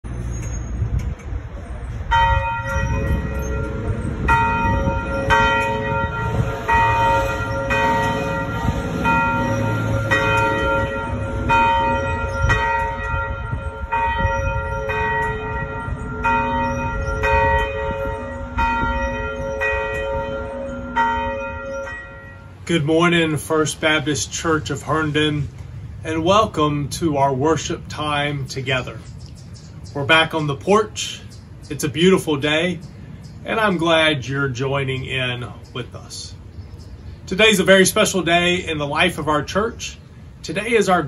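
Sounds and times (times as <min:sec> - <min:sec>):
church bells ringing: 0:01.9 - 0:26.8.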